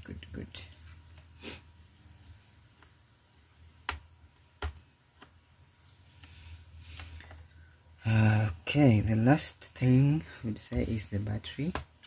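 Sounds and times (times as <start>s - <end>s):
soft rustle of handling: 0.3s - 3.6s.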